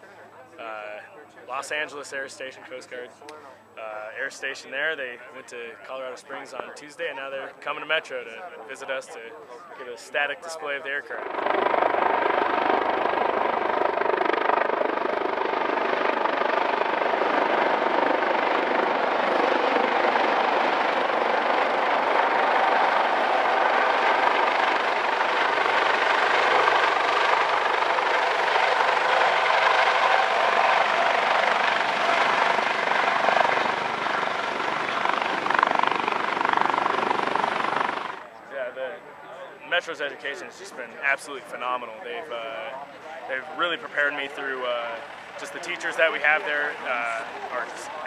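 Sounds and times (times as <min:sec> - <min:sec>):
helicopter rotors and engines: 0:09.9 - 0:48.0.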